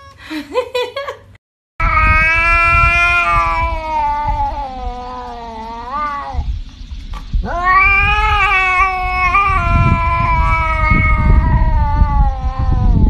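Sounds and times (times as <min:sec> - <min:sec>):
cat yowling: 0:01.8 - 0:06.5, 0:07.4 - 0:13.0.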